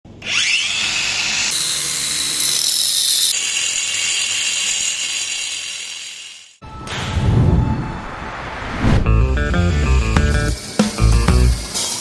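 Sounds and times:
angle grinder cutting brick: 0:00.3 - 0:06.6.

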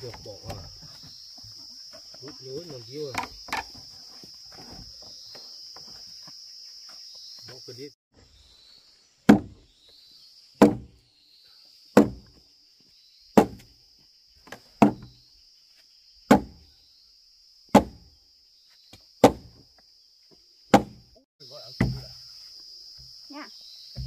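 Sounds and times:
high insect drone: 0:00.0 - 0:24.0
heavy blows on wood: 0:10.6 - 0:11.0, 0:12.0 - 0:12.4, 0:13.4 - 0:13.7, 0:14.4 - 0:15.2, 0:16.3 - 0:16.6, 0:17.7 - 0:18.1, 0:19.2 - 0:19.6, 0:20.7 - 0:21.1.

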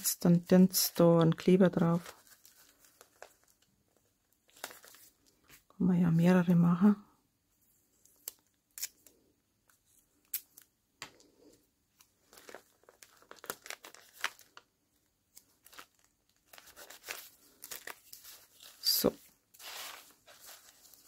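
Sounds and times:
plastic bag crinkling: 0:12.1 - 0:14.7, 0:15.3 - 0:21.0.

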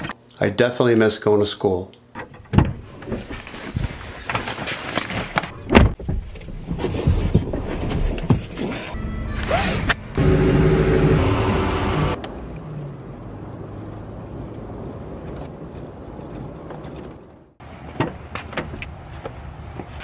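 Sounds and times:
road and engine noise inside cab: 0:09.4 - 0:17.8.

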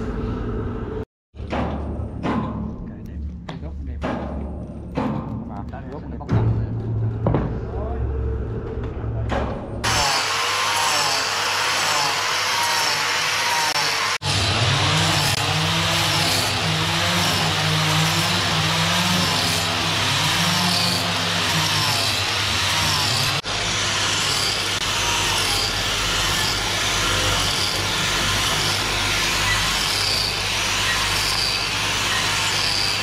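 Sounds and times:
angle grinder grinding wood: 0:09.8 - 0:33.0.

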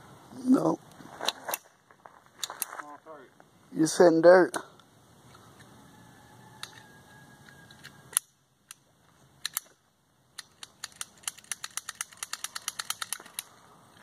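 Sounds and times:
pistol metallic clicks: 0:07.5 - 0:13.5.

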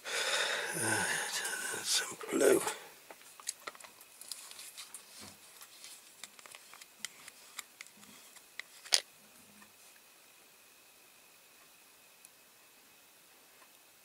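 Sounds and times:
clicks of handling toy model: 0:05.8 - 0:09.0.

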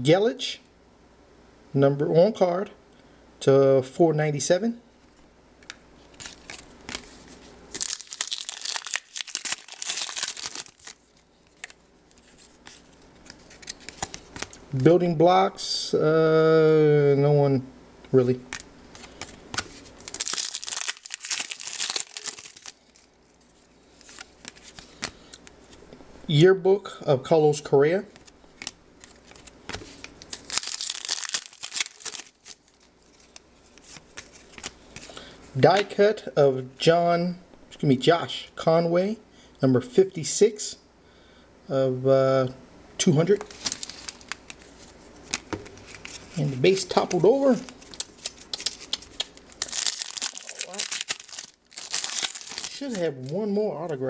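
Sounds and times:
cards handled with clicks and rustles: 0:05.1 - 0:14.6, 0:18.4 - 0:25.8, 0:28.1 - 0:36.0, 0:43.3 - 0:54.0
foil wrapper tearing and crinkling: 0:06.2 - 0:14.6, 0:18.5 - 0:25.2, 0:28.2 - 0:35.0, 0:43.4 - 0:53.4.

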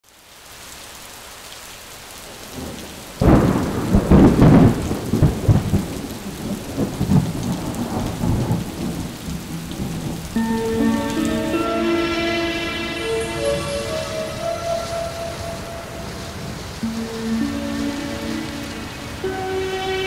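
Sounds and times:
steady rain: 0:00.0 - 0:20.0
loud thunderclap rumbling: 0:02.5 - 0:10.4, 0:13.1 - 0:20.0.

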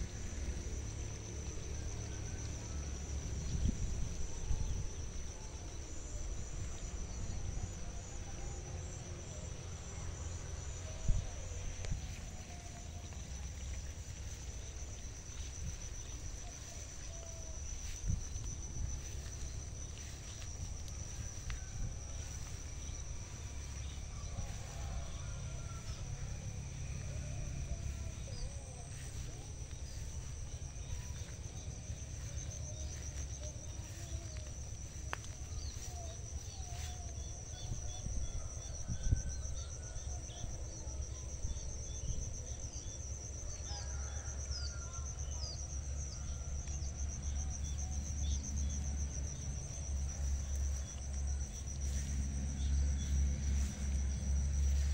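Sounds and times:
low rumble: 0:09.8 - 0:38.3, 0:46.6 - 0:54.9.

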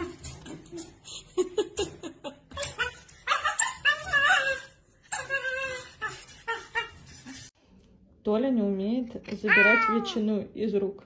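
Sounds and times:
puppy whining and yipping: 0:02.5 - 0:07.4.

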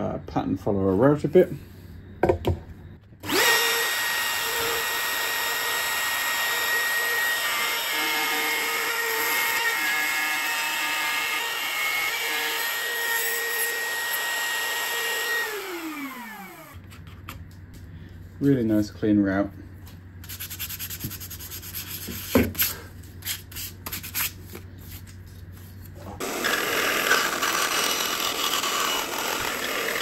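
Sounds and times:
trim router whining: 0:03.2 - 0:16.8, 0:26.2 - 0:30.0.

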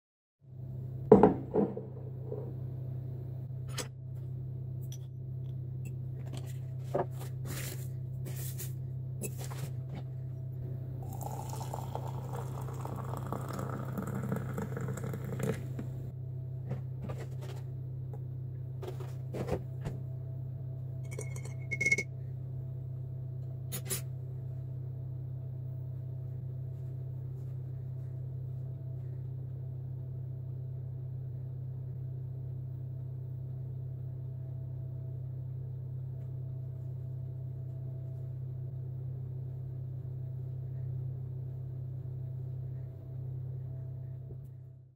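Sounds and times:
steady low hum: 0:00.5 - 0:44.9
liquid pouring into mug: 0:11.0 - 0:16.1
ringing clink: 0:21.1 - 0:22.1.

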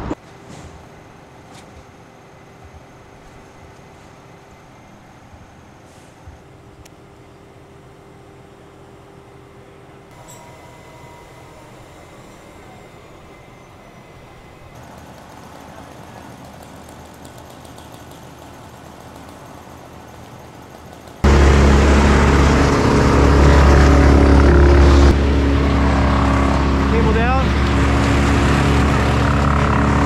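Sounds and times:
faint machinery hum: 0:00.1 - 0:28.9
loud engine running: 0:10.1 - 0:30.0.

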